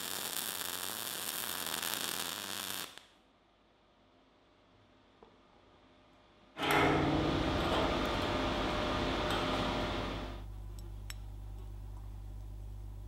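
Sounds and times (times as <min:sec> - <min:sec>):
cooling fan rushing and humming: 0:06.6 - 0:13.0.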